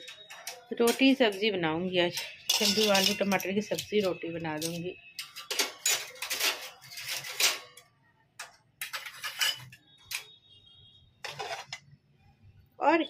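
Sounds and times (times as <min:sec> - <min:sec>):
metal utensils clattering: 0:00.0 - 0:10.3, 0:11.2 - 0:11.8.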